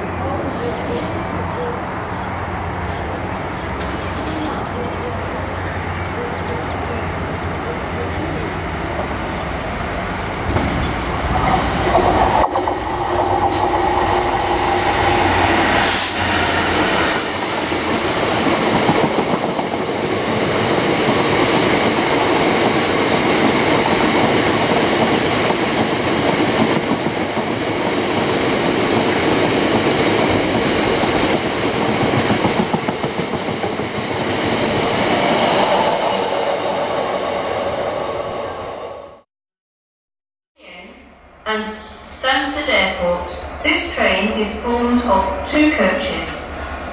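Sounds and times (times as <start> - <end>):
diesel locomotive passing: 0.0 - 39.3, 42.0 - 46.9
train wheels clattering over track: 3.6 - 5.0, 10.4 - 36.0.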